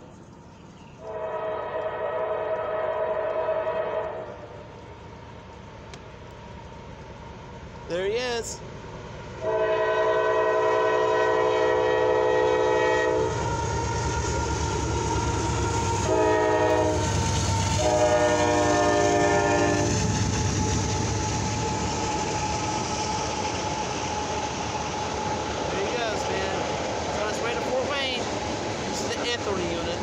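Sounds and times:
train rumble and wheel clatter: 0:00.0 - 0:30.0
locomotive air horn blasts: 0:01.0 - 0:04.3, 0:09.4 - 0:14.2, 0:15.9 - 0:20.0.

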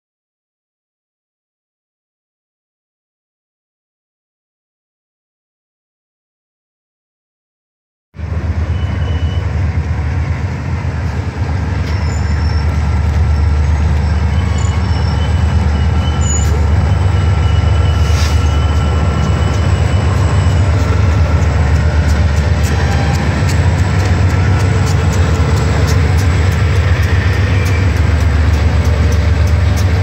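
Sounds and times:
locomotive engines rumbling: 0:08.2 - 0:30.0
wheels squealing on rails: 0:08.2 - 0:30.0.

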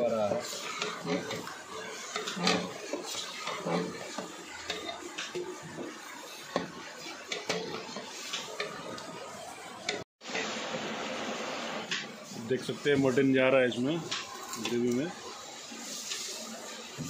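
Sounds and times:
metal ladle clinking and scraping pot: 0:00.3 - 0:05.9, 0:06.5 - 0:08.9.

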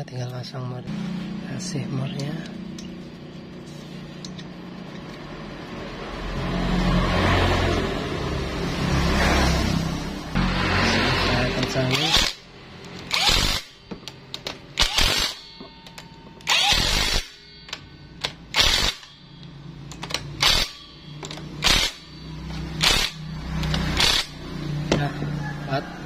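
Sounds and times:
impact wrench bursts: 0:11.4 - 0:24.6.

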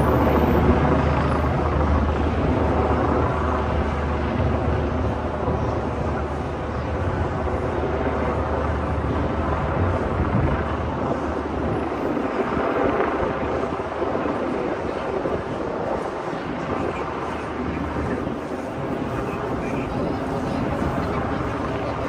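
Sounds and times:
traffic: 0:00.0 - 0:22.0.

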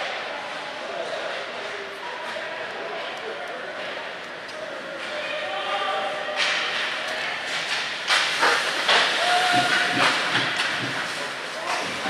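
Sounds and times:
skate blades scraping on ice: 0:07.5 - 0:12.0.

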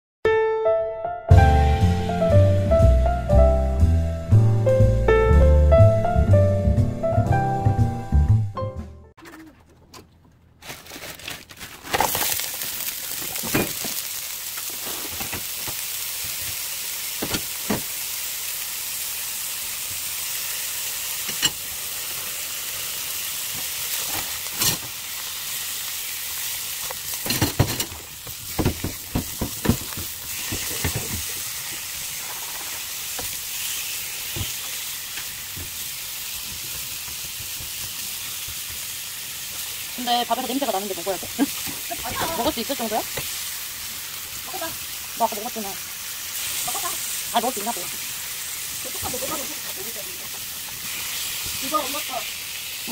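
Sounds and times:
meat sizzling in a frying pan: 0:12.0 - 0:52.9.

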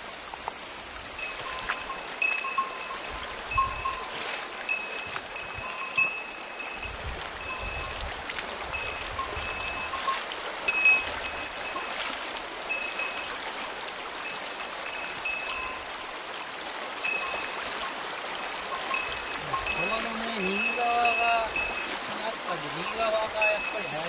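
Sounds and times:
creek water flowing: 0:00.0 - 0:24.0
high ringing clinks: 0:01.2 - 0:08.0, 0:08.8 - 0:12.0, 0:12.7 - 0:13.3, 0:14.3 - 0:15.9, 0:17.0 - 0:22.0, 0:22.8 - 0:24.0.

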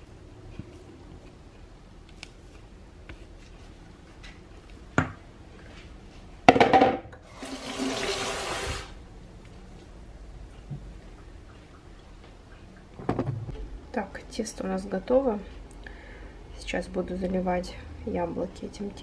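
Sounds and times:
water running from a tap: 0:07.2 - 0:08.9.

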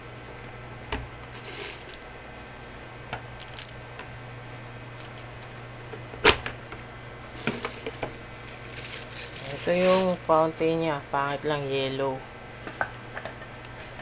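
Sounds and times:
plastic wrap rustling: 0:01.2 - 0:02.0, 0:03.4 - 0:03.8, 0:07.3 - 0:10.7.

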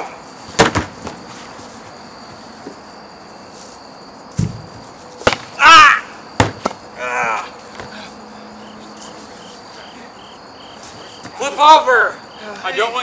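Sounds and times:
crickets chirping: 0:00.0 - 0:13.0
person crying out: 0:05.6 - 0:06.1, 0:07.0 - 0:07.6
person yelling: 0:05.6 - 0:06.1.

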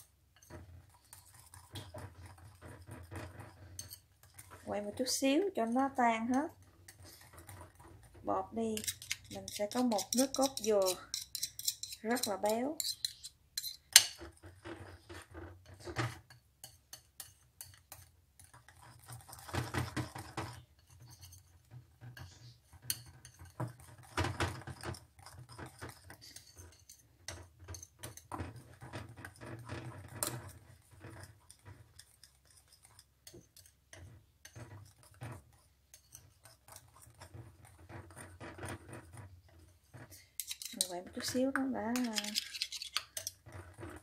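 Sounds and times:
wire whisk clinking against bowl: 0:01.2 - 0:04.5, 0:08.8 - 0:14.2, 0:40.4 - 0:43.9.

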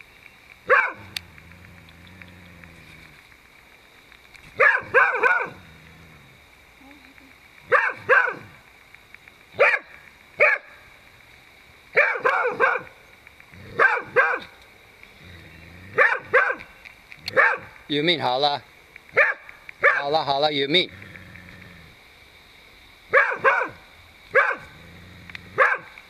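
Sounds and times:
dog barking: 0:00.7 - 0:01.1, 0:04.6 - 0:05.6, 0:07.7 - 0:08.5, 0:09.6 - 0:10.7, 0:12.0 - 0:12.9, 0:13.8 - 0:14.5, 0:16.0 - 0:16.6, 0:17.3 - 0:17.7, 0:19.2 - 0:20.1, 0:23.1 - 0:23.8, 0:24.4 - 0:24.7, 0:25.6 - 0:25.9.

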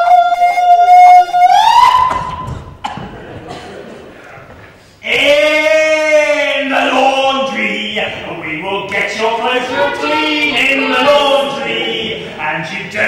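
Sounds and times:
shrill high vocal note: 0:09.4 - 0:12.2.

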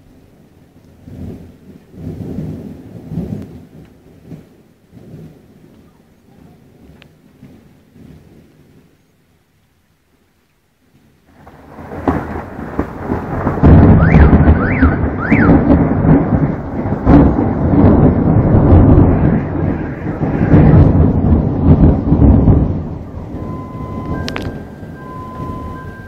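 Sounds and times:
thunder rumbling: 0:00.0 - 0:26.0.

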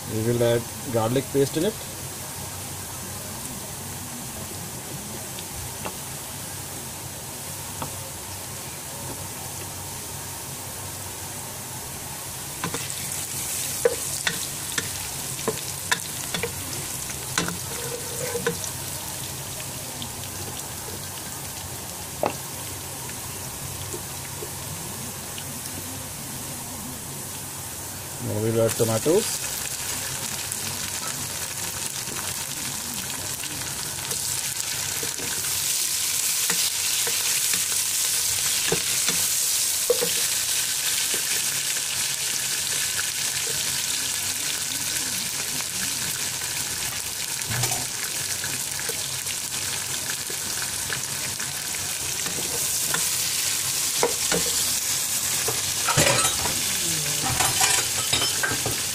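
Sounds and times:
vegetables sizzling in oil: 0:00.0 - 0:58.9
spoon scraping a pan: 0:12.6 - 0:18.7, 0:36.4 - 0:40.4.

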